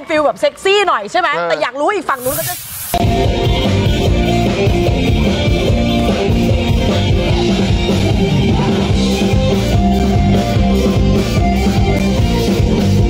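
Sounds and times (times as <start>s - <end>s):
live rock-pop band: 3.0s - 13.0s.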